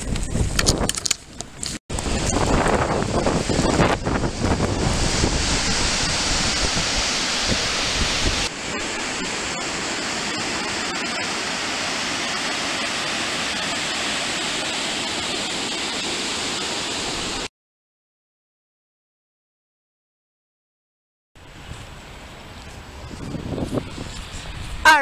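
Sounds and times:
gusty wind buffeting microphone: 0:00.0 - 0:10.8, 0:21.4 - 0:25.0
water cascading into a river: 0:02.0 - 0:17.5.

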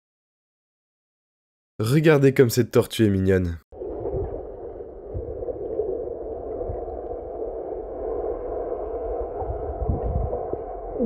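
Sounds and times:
low underwater thumps: 0:03.8 - 0:07.3
underwater rush of water: 0:03.8 - 0:11.0.

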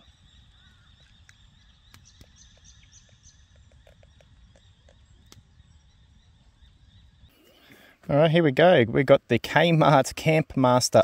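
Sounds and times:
low wind rumble: 0:00.0 - 0:07.4
soft bird chirps: 0:00.0 - 0:08.0
sharp clicks: 0:01.2 - 0:02.6, 0:03.7 - 0:05.5.

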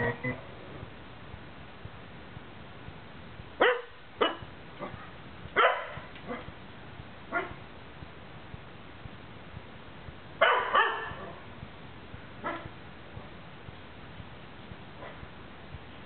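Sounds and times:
dog barking: 0:03.6 - 0:05.0, 0:05.6 - 0:06.5, 0:07.3 - 0:07.6, 0:10.4 - 0:11.4, 0:12.4 - 0:12.7.

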